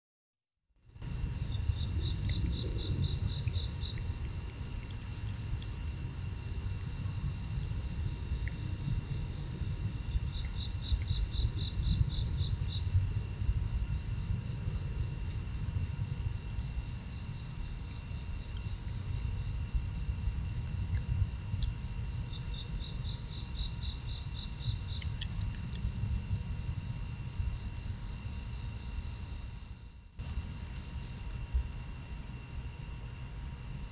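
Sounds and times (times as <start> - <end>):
cricket trill: 0.8 - 33.9
low rumble: 1.1 - 6.2
insect calling in pulses: 24.6 - 25.9.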